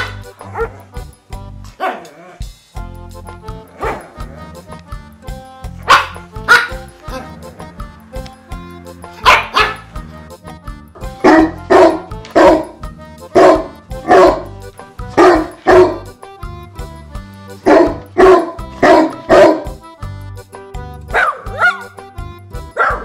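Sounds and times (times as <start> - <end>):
dog barking: 0.0 - 0.8, 1.8 - 2.1, 3.8 - 4.2, 5.8 - 6.8, 9.2 - 9.9, 11.2 - 14.5, 15.2 - 16.0, 17.6 - 19.7, 21.1 - 21.9, 22.8 - 23.0
background music with low notes: 0.0 - 23.0.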